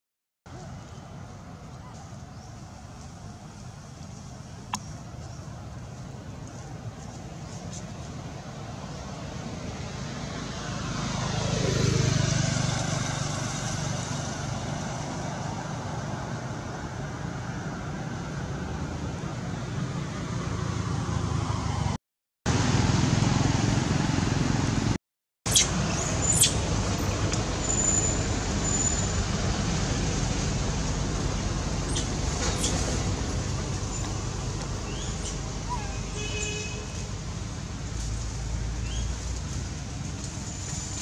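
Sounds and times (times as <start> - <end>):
road traffic rumble and hiss: 0.5 - 41.0
sharp high squeaks: 27.6 - 29.2.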